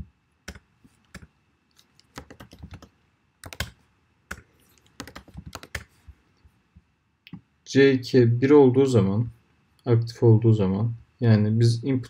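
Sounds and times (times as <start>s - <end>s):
computer keyboard typing: 0.5s - 6.0s.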